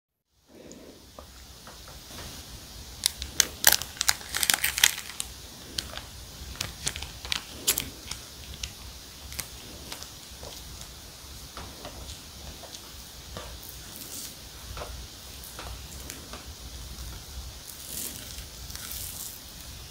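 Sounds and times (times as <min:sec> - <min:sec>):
plastic wrapping crinkling: 0:03.0 - 0:10.8.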